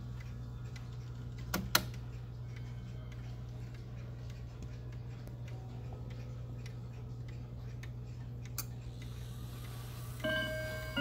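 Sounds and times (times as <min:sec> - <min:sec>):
wall clock ticking: 0:00.0 - 0:11.0
clock chime rods ringing: 0:09.8 - 0:11.0.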